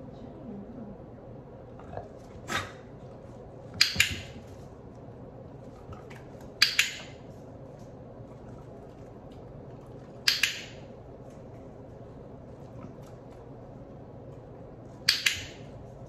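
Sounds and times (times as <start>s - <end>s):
dog-training clicker clicks: 3.8s - 4.4s, 6.6s - 7.2s, 10.2s - 10.8s, 15.1s - 15.6s.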